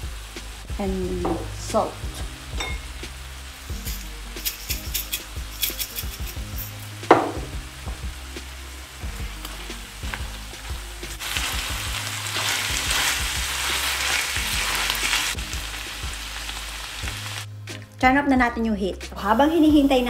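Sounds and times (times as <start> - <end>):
chicken sizzling in sauce: 0.0 - 17.6.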